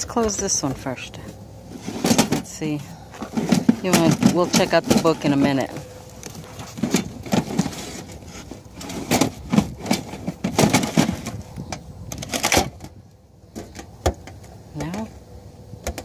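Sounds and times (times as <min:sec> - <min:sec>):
metal drawer knocks and rattles: 0:01.8 - 0:02.5, 0:06.7 - 0:11.4.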